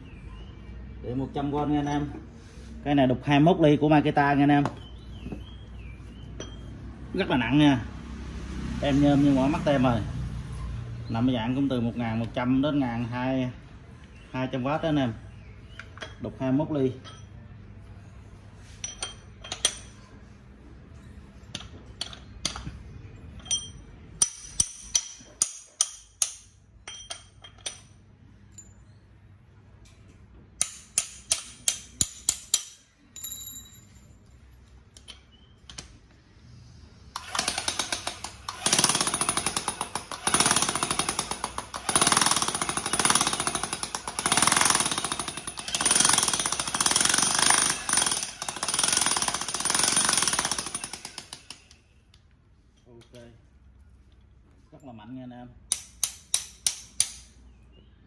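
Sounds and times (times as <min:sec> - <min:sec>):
metal clicks and clinks: 0:18.8 - 0:20.0, 0:23.4 - 0:26.0, 0:26.8 - 0:28.9, 0:30.6 - 0:34.2.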